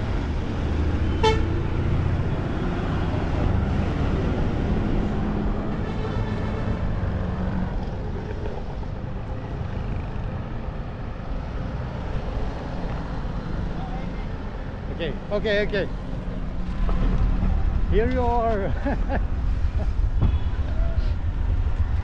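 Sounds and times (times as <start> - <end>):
road traffic rumble: 0.0 - 22.0
car horn toot: 1.1 - 1.5.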